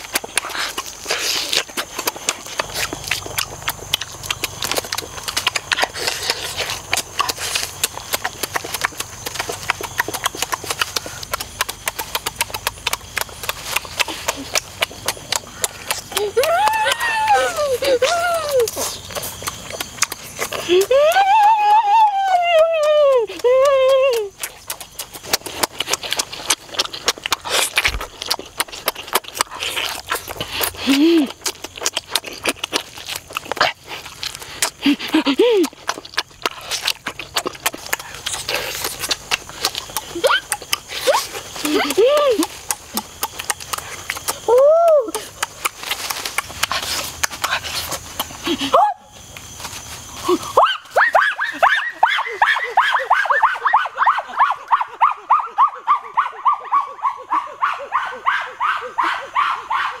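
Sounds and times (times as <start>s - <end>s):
wet chewing and smacking: 0.0s - 60.0s
high yelping animal calls: 3.4s - 25.1s, 37.1s - 44.6s, 50.5s - 60.0s.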